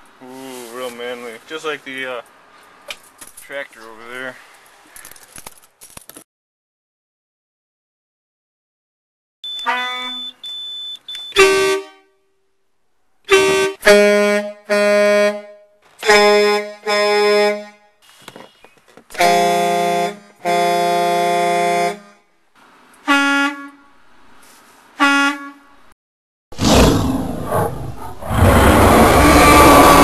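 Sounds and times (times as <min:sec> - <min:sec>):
truck horns honking: 0:09.4 - 0:12.4, 0:13.2 - 0:22.3, 0:23.0 - 0:24.1, 0:24.9 - 0:25.9, 0:29.1 - 0:30.0.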